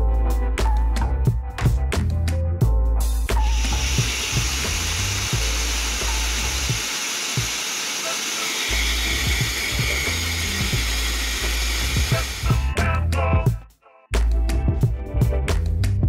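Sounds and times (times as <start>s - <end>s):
pet dryer blowing air: 3.4s - 12.6s
music with pulsing bass beat: 8.8s - 16.0s.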